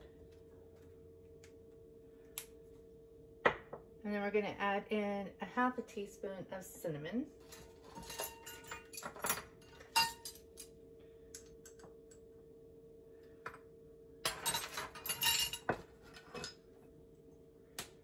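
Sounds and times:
faint hum: 0:00.0 - 0:18.0
metal spoon clinking and scraping: 0:07.4 - 0:10.7, 0:14.3 - 0:16.6.

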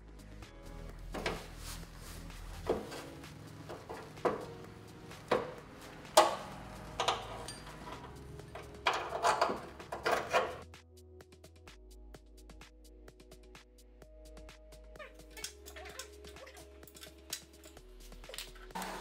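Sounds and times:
metal knocks and clunks: 0:02.6 - 0:10.6.

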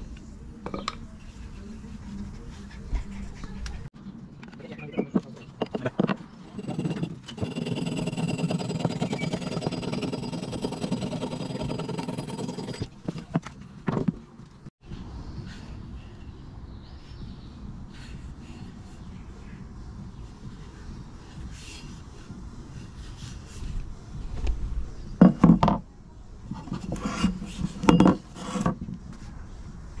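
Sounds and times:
scraping on wood: 0:05.0 - 0:14.2, 0:26.5 - 0:28.9
hacksaw cutting wood: 0:06.6 - 0:12.9.

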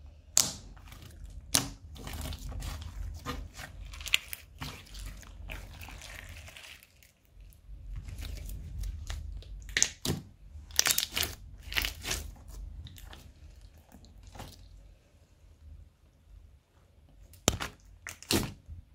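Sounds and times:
slime being squeezed: 0:00.4 - 0:07.1, 0:08.1 - 0:13.2, 0:17.4 - 0:18.6.

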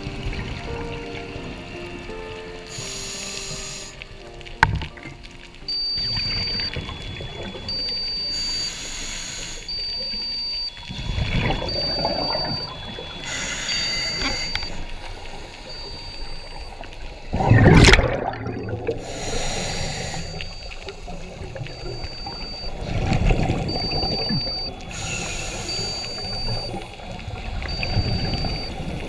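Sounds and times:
diver breathing through regulator: 0:02.7 - 0:04.1, 0:08.3 - 0:09.9, 0:11.0 - 0:14.8, 0:18.9 - 0:20.7, 0:24.1 - 0:26.7
short high beeps: 0:05.7 - 0:14.8, 0:21.7 - 0:23.0, 0:23.6 - 0:26.8, 0:27.7 - 0:28.8
underwater exhaled bubbles: 0:10.9 - 0:29.0.

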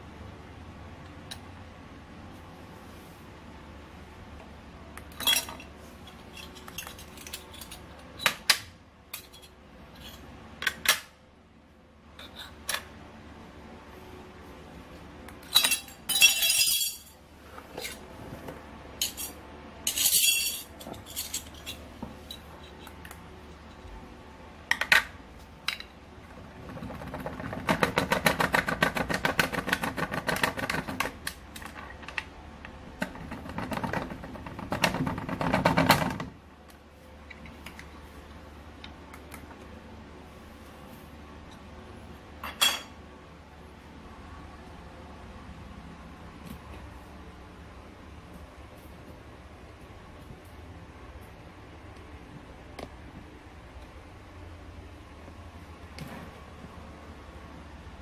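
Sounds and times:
metal pieces clinking on metal plate: 0:05.2 - 0:05.6, 0:15.5 - 0:17.2, 0:19.0 - 0:22.4.

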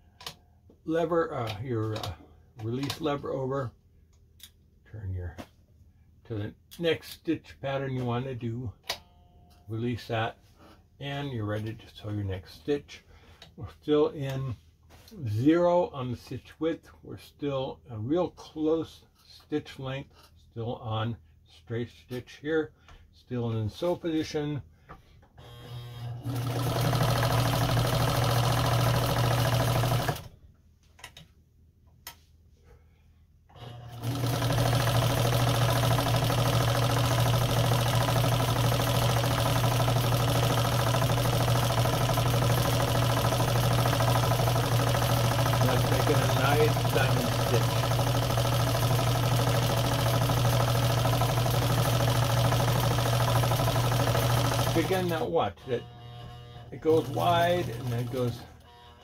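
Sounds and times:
sewing machine stitching: 0:25.4 - 0:30.4, 0:33.5 - 0:55.3, 0:56.8 - 0:58.6
needle mechanism ticking: 0:34.0 - 0:55.2.

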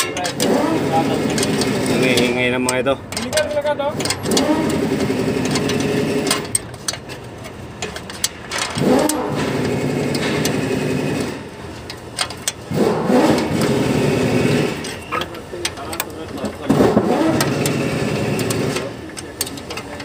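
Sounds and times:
engine revving: 0:00.0 - 0:02.8, 0:03.8 - 0:06.5, 0:08.6 - 0:11.6, 0:12.6 - 0:15.2, 0:16.4 - 0:19.1.

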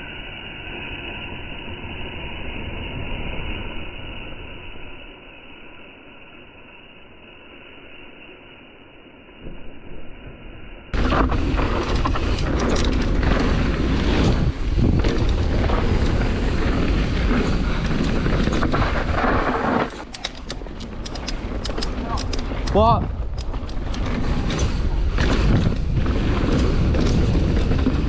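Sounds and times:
bike tyres and chain rattling: 0:00.0 - 0:10.2, 0:10.8 - 0:28.0
wind rushing over microphone: 0:11.0 - 0:28.0.

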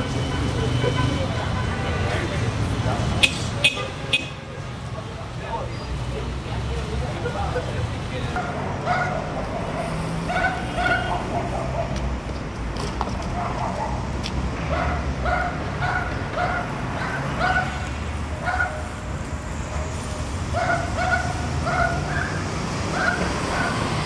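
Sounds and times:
dog barking: 0:08.4 - 0:12.0, 0:13.4 - 0:14.1, 0:14.7 - 0:17.8, 0:18.4 - 0:18.9, 0:20.6 - 0:24.0.

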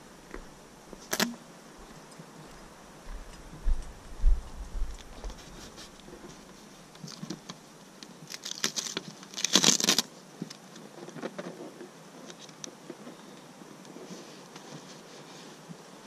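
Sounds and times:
camera rubbing and crackling: 0:04.9 - 0:07.6, 0:08.3 - 0:12.7.

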